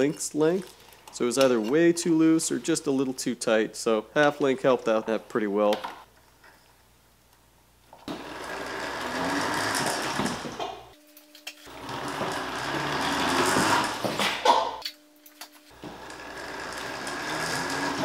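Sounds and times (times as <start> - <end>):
electric motor whirring: 8.1 - 10.5, 11.7 - 14.1, 15.6 - 18.0.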